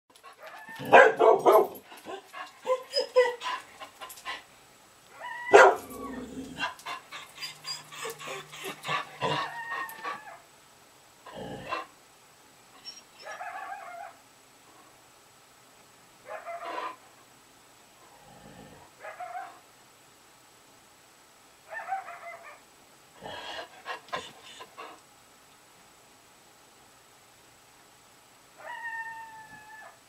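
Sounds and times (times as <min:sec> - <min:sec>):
dog barking and yipping indoors: 0:00.2 - 0:04.4, 0:05.1 - 0:10.5, 0:12.8 - 0:14.2, 0:16.2 - 0:17.0, 0:19.0 - 0:19.6, 0:21.6 - 0:22.7, 0:28.6 - 0:30.0.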